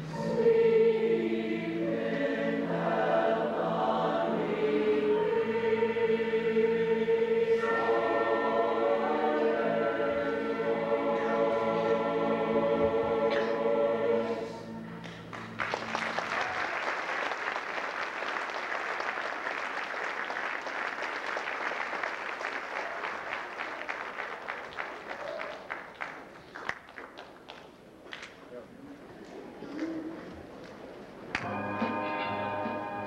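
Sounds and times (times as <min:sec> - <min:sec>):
choir holding a chord: 0:00.0 - 0:15.4, 0:31.4 - 0:33.0
audience applauding: 0:15.0 - 0:28.4.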